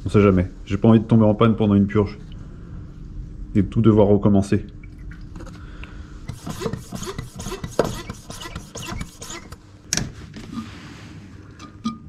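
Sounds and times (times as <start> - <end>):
plastic bottle and hose rubbing: 6.3 - 9.6.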